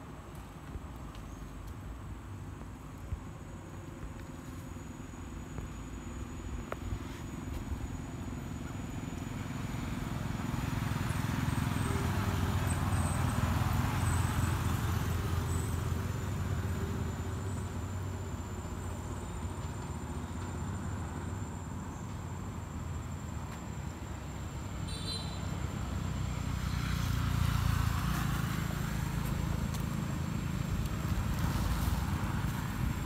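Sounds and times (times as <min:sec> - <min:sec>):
vehicle engine rumble passing: 0:07.0 - 0:21.8, 0:25.4 - 0:33.0.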